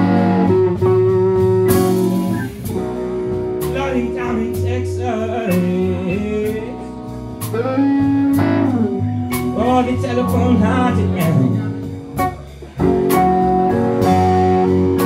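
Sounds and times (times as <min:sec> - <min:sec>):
blues band playing: 0:00.0 - 0:15.0
drum and cymbal hits: 0:00.0 - 0:15.0
man singing: 0:03.6 - 0:07.8, 0:09.3 - 0:11.9.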